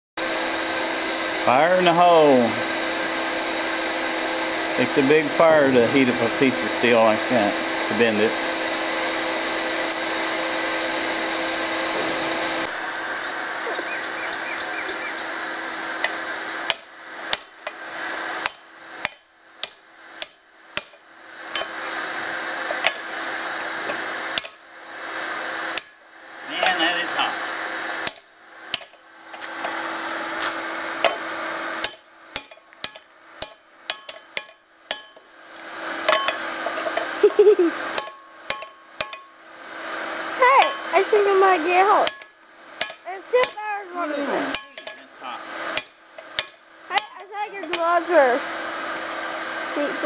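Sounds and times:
forge blower hissing: 0:00.2 - 0:33.6, 0:35.4 - 0:50.0
hammer striking hot steel on anvil: 0:16.0 - 0:17.8, 0:18.4 - 0:21.8, 0:22.8 - 0:23.1, 0:24.3 - 0:24.6, 0:25.7 - 0:26.0, 0:28.0 - 0:29.0, 0:31.0 - 0:35.3, 0:36.0 - 0:36.5, 0:38.0 - 0:39.4, 0:40.6 - 0:40.9, 0:42.0 - 0:43.6, 0:44.5 - 0:45.1, 0:45.7 - 0:47.9.

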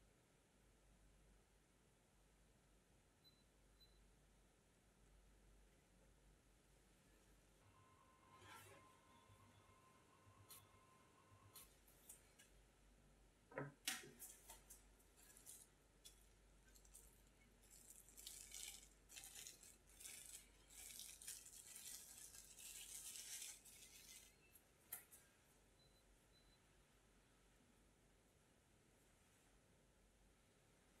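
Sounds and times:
cling film crinkling: 0:13.9 - 0:25.2.

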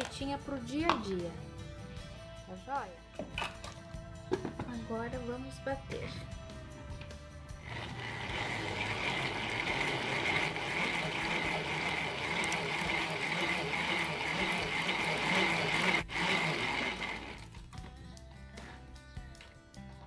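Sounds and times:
hand-cranked mixer whirring: 0:07.6 - 0:17.7.

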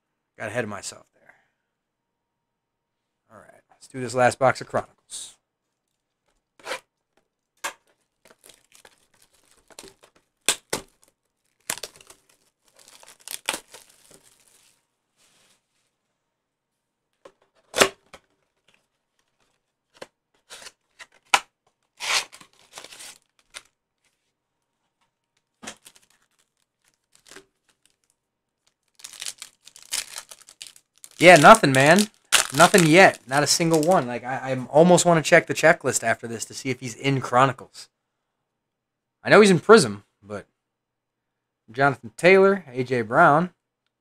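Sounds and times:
foil packs crinkling: 0:07.8 - 0:14.8, 0:22.0 - 0:23.8, 0:25.4 - 0:34.2
plastic wrap tearing: 0:07.9 - 0:14.8, 0:22.0 - 0:23.8, 0:25.4 - 0:34.1.

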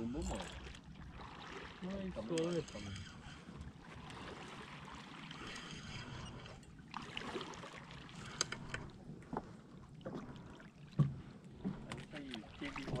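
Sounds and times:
water splashing and sloshing: 0:00.0 - 0:13.0
fishing reel clicking: 0:02.3 - 0:03.4.

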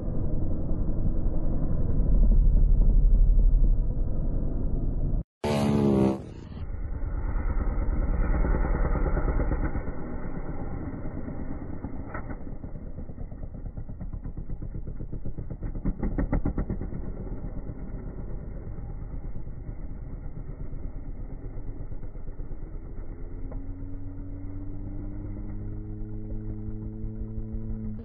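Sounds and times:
engine note rising in pitch: 0:05.4 - 0:13.6, 0:15.6 - 0:28.0
dirt bike engine revving: 0:05.4 - 0:28.0.

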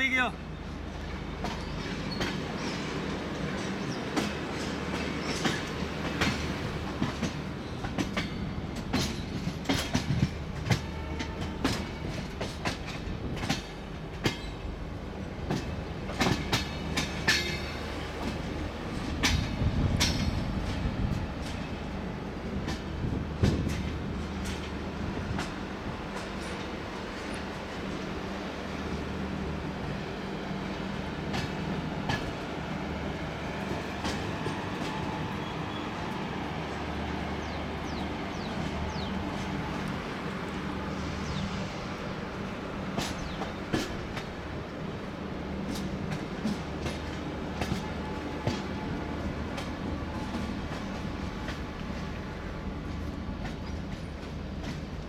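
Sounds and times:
train wheels rumbling: 0:00.0 - 0:55.0
wheels clicking over rail joints: 0:01.4 - 0:29.1, 0:42.0 - 0:55.0.

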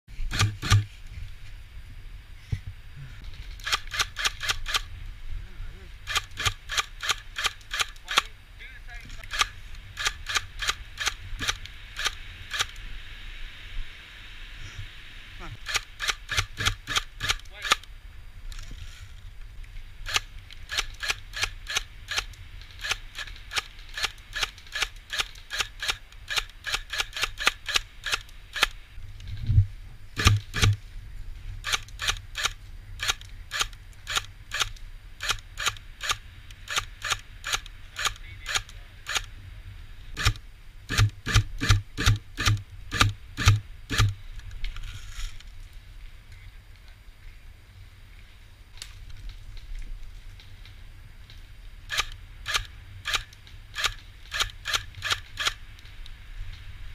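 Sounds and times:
airsoft gun shots: 0:00.3 - 0:00.9, 0:15.6 - 0:17.8, 0:30.2 - 0:30.8, 0:40.2 - 0:44.2.

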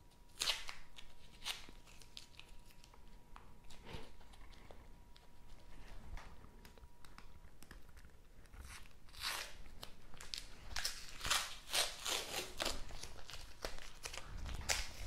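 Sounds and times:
paper wrapping crinkling and tearing: 0:00.3 - 0:03.1, 0:06.6 - 0:15.0.

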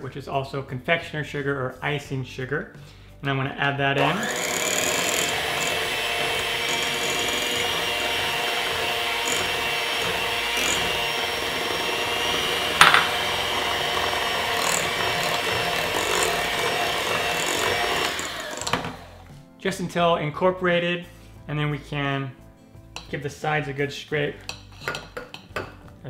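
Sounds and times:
electric hand mixer whine: 0:04.0 - 0:19.3
sharp knock: 0:12.8 - 0:13.2.

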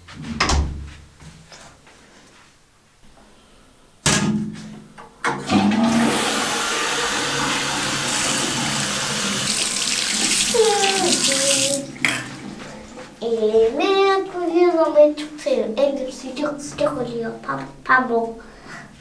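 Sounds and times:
sink tap water running: 0:05.5 - 0:12.9
child humming: 0:10.5 - 0:11.9.

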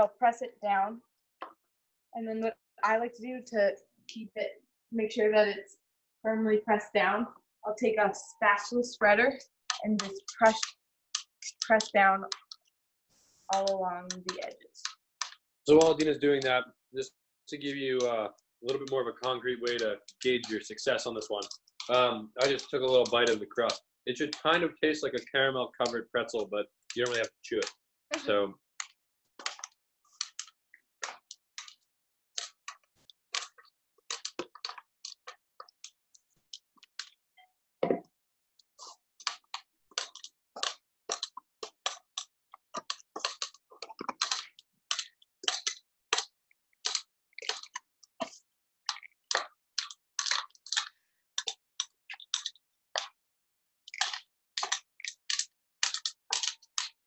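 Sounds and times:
crisp crust crackling: 0:08.6 - 0:12.6, 0:18.7 - 0:25.0, 0:33.4 - 0:35.8, 0:38.8 - 0:53.2, 0:53.9 - 0:57.0.

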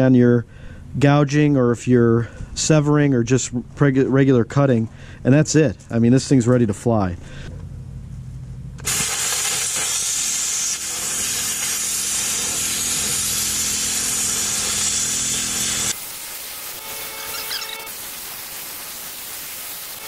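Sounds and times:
low hum: 0:06.6 - 0:09.6
plasma arc hissing: 0:08.8 - 0:20.0.

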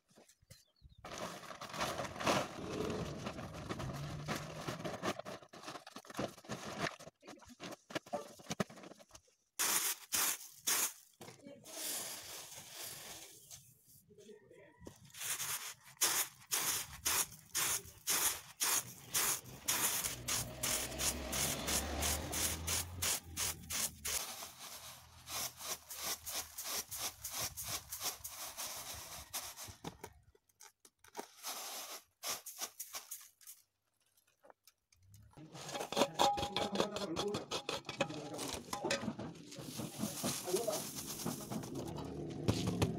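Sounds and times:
rice rustling on winnowing tray: 0:09.6 - 0:13.6, 0:15.1 - 0:29.8, 0:31.2 - 0:33.6, 0:39.6 - 0:41.8
rice being poured: 0:11.7 - 0:13.3, 0:31.4 - 0:33.1, 0:39.6 - 0:41.8.

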